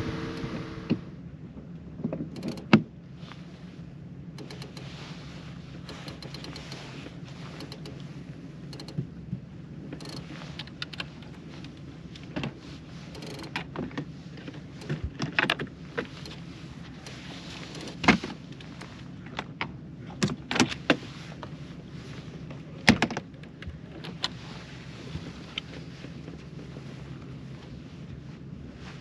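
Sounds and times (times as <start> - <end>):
boat motor humming: 0.0 - 1.7, 3.8 - 20.2.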